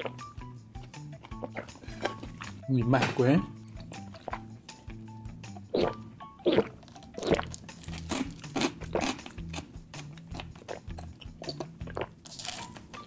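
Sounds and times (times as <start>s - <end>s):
chewing tapioca pearls: 5.7s - 12.8s
wet sips and swallows: 10.2s - 12.7s.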